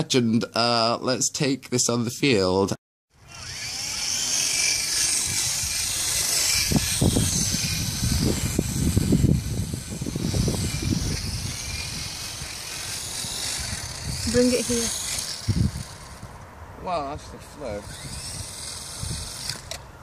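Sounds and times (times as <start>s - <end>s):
model helicopter whine: 3.1s - 16.3s, 17.4s - 19.8s
wind rumble on microphone: 5.1s - 19.6s.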